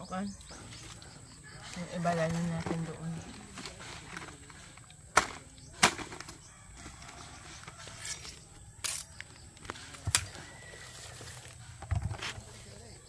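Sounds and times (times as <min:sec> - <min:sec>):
machete chopping coconuts: 0:05.1 - 0:06.3.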